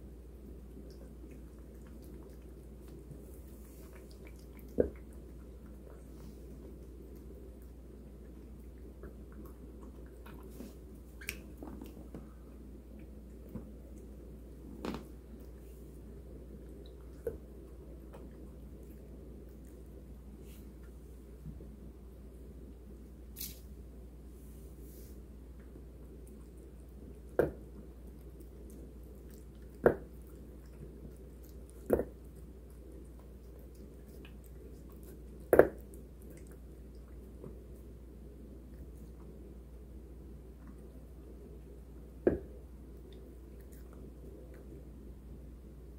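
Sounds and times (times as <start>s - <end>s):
cat chewing food: 0.0s - 23.3s, 25.3s - 45.3s
low steady hum: 0.0s - 45.9s
wet smacks: 11.2s - 12.0s.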